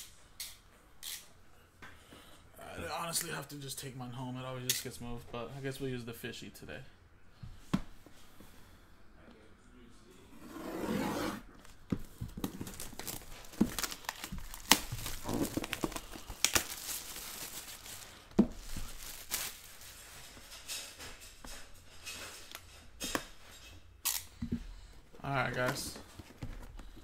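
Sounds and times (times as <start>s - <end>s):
plastic wrap crinkling: 11.6s - 21.0s
knife slitting plastic wrap: 12.6s - 20.2s.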